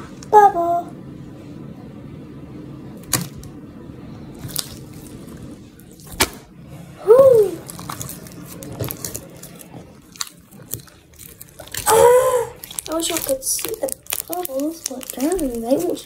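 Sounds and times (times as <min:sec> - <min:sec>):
slime squished by hand: 0:04.4 - 0:06.5, 0:07.3 - 0:16.0.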